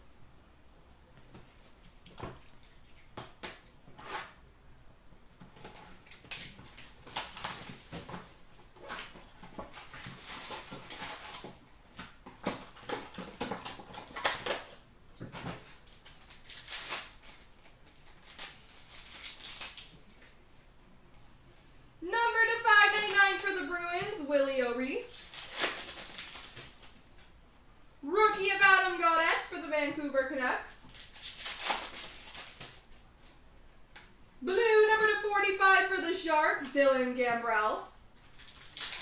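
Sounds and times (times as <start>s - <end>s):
wrappers tearing and crinkling: 5.5s - 14.8s, 15.5s - 20.3s, 25.0s - 27.3s, 30.8s - 32.9s, 38.2s - 39.0s.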